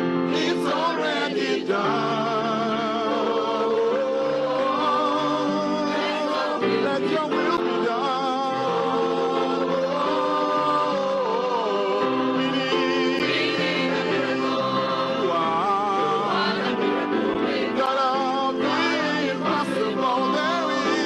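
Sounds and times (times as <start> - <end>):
choir singing gospel song: 0.0 - 21.0.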